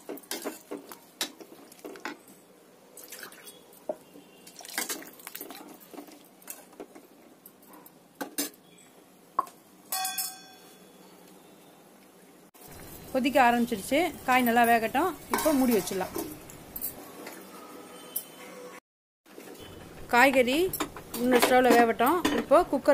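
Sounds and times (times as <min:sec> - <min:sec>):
ladle stirring liquid in a pan: 0:03.0 - 0:07.2
metal clink: 0:09.9 - 0:10.8.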